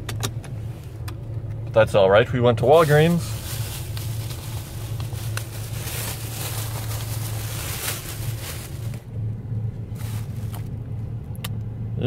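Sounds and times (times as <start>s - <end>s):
road and engine drone in cabin: 0.0s - 12.0s.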